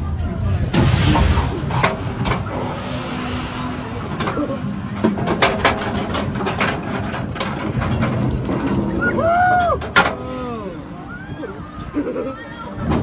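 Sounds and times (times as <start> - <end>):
roller coaster train rumbling: 0.0 - 13.0
mechanical clicks and clanks: 4.1 - 9.0.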